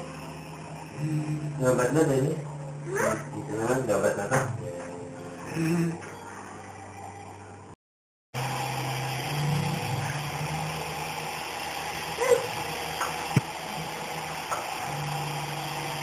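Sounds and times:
toy helicopter rotors whirring: 0:09.2 - 0:16.0.

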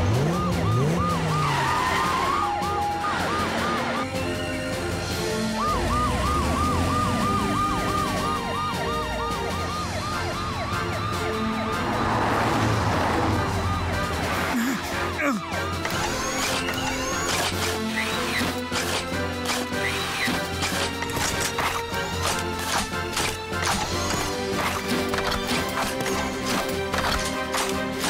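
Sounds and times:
cartoon sirens whooping: 0:00.0 - 0:04.4, 0:05.0 - 0:18.7
background music: 0:00.0 - 0:28.0.

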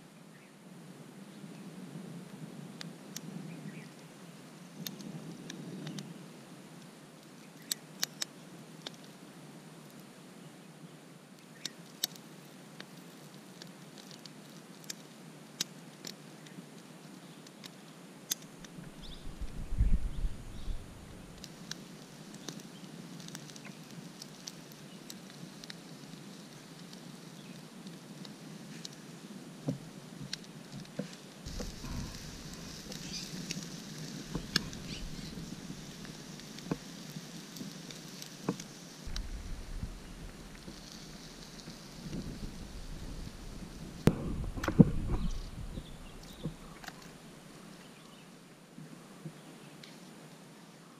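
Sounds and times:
steady hiss: 0:00.0 - 0:50.9
wood fire crackling and popping: 0:06.8 - 0:10.1, 0:11.4 - 0:47.8
wind rumble on microphone: 0:18.6 - 0:21.5, 0:31.5 - 0:37.8, 0:38.4 - 0:47.6.

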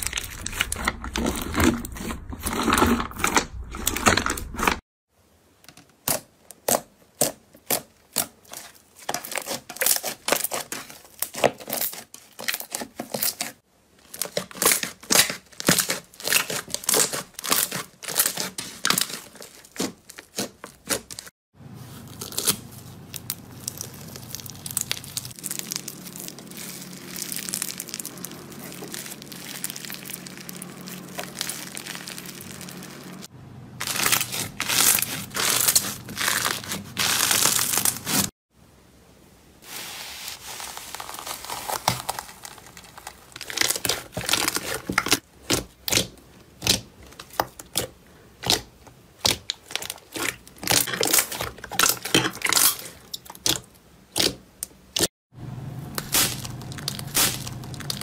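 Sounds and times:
hands squeezing slime: 0:22.0 - 0:33.2, 0:33.8 - 0:38.3.

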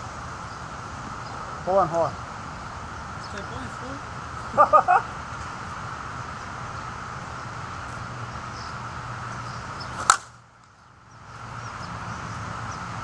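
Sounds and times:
bat striking softball: 0:10.0 - 0:10.4.

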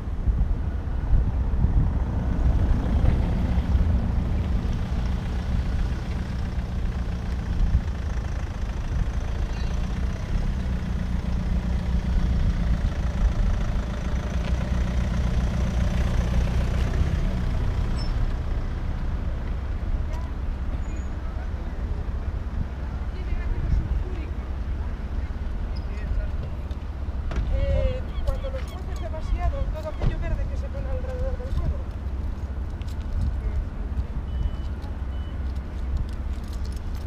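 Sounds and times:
heavy engine idling: 0:02.1 - 0:25.5.

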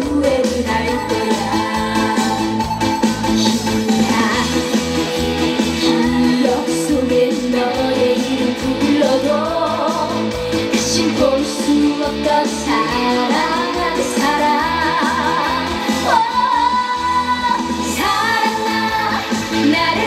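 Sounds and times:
amplified music: 0:00.0 - 0:20.0
woman singing into microphone: 0:00.0 - 0:20.0.

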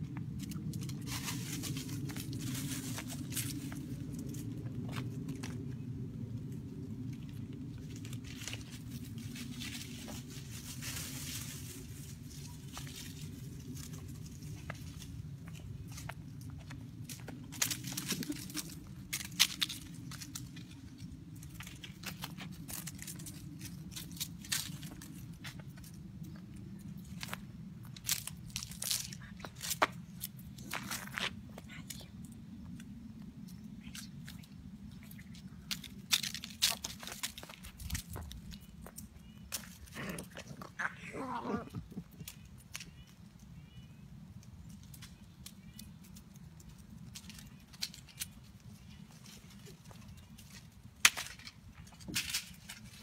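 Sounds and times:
puppy claws pattering on asphalt: 0:00.0 - 0:53.0
steady low rumble: 0:00.0 - 0:53.0
steps crunching dry leaves: 0:00.4 - 0:05.5, 0:07.8 - 0:26.0, 0:27.0 - 0:31.5, 0:35.0 - 0:40.6.

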